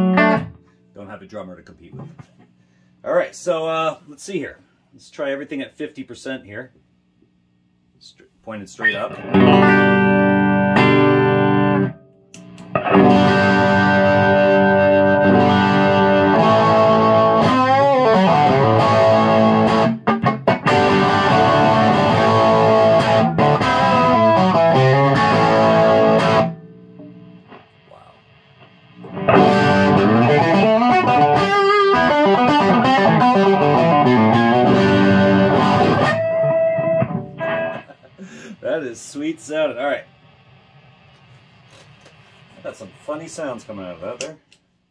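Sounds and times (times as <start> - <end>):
overdriven electric guitar: 0.0 - 0.8, 9.0 - 38.5.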